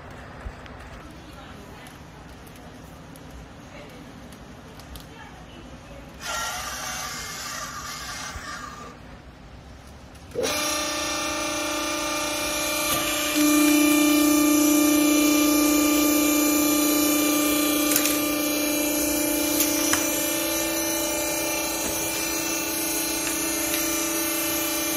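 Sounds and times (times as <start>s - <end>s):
hydraulic pump motor humming: 10.3s - 24.9s.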